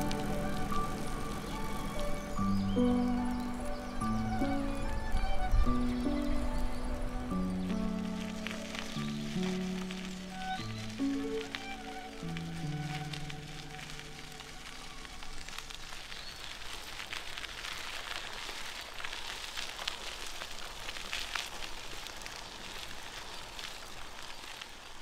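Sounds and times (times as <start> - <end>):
background music: 0.0 - 14.8
bicycle tyres on gravel: 0.0 - 25.0.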